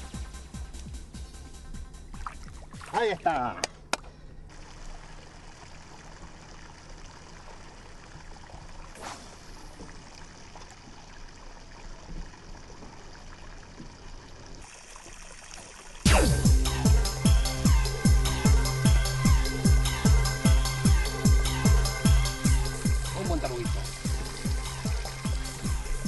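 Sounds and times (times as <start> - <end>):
lake water lapping: 2.1 - 16.1
faint swish: 9.0 - 9.7
loud electronic music: 16.1 - 26.0.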